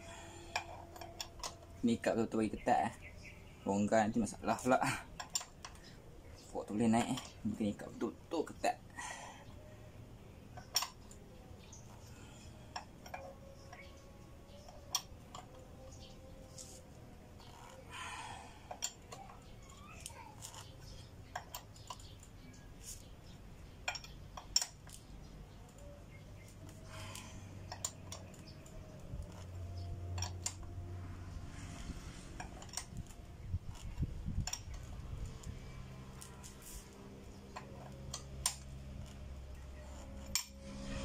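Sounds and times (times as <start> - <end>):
brief scraping: 40.0 - 41.0.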